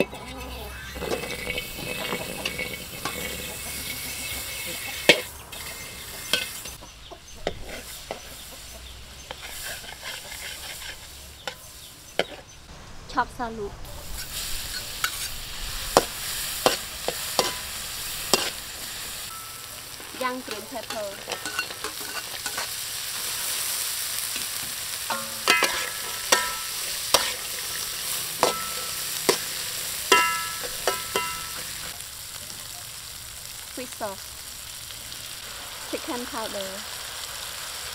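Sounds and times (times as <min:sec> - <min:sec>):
metal ladle scraping wok: 0:00.0 - 0:06.8, 0:07.4 - 0:12.5, 0:14.0 - 0:32.0
egg sizzling in oil: 0:00.0 - 0:12.4, 0:14.0 - 0:37.9.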